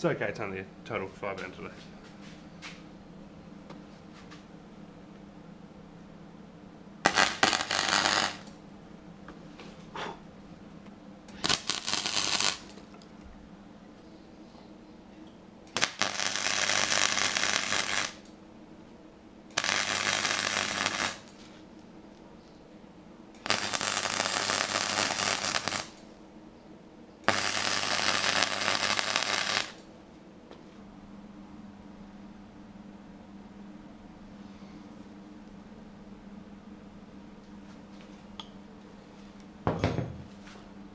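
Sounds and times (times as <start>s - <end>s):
steady low hum: 0.0s - 40.9s
crackling welding arc: 7.0s - 8.6s, 11.3s - 13.0s, 15.7s - 18.4s, 19.5s - 21.5s, 23.4s - 26.1s, 27.2s - 29.9s.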